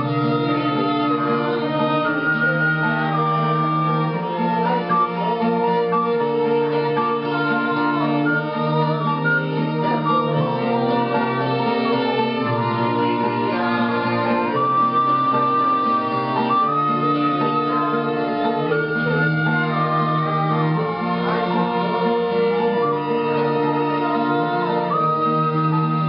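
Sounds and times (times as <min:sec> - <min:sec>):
acoustic guitar: 0:00.0 - 0:26.0
violins playing: 0:00.0 - 0:26.0
woman singing: 0:04.2 - 0:16.5, 0:17.2 - 0:25.0.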